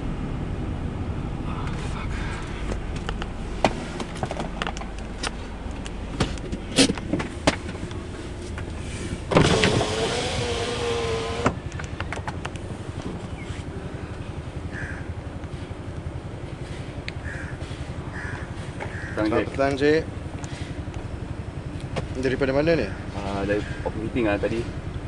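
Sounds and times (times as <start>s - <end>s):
car engine and cabin rumble: 0.0s - 25.0s
sharp clicks and knocks: 2.7s - 8.7s, 11.4s - 13.2s
power window motor whining: 9.3s - 11.7s.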